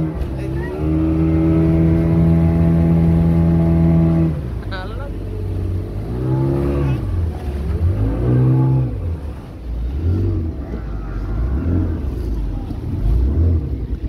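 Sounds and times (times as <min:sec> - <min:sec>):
people's voices: 0:00.0 - 0:01.6, 0:04.6 - 0:14.0
speedboat engine rumbling: 0:00.0 - 0:14.0.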